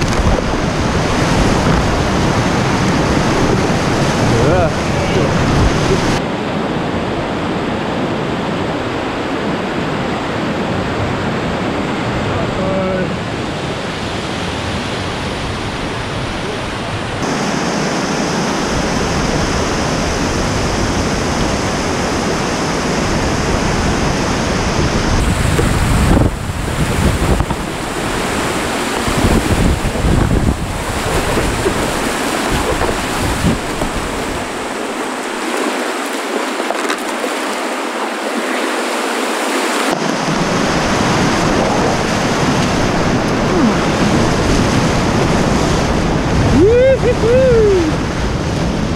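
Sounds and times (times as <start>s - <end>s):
whitewater rapids rushing: 0.0s - 48.9s
water splashing: 25.2s - 47.5s.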